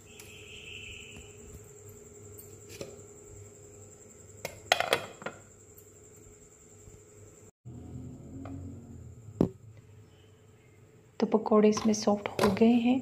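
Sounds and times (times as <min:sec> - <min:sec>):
faint steady hum: 0:05.4 - 0:13.0.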